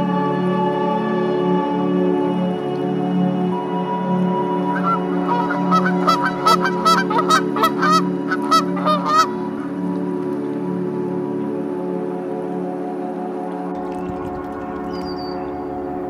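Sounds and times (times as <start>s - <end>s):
droning background music: 0.0s - 16.0s
goose honking: 4.7s - 9.6s.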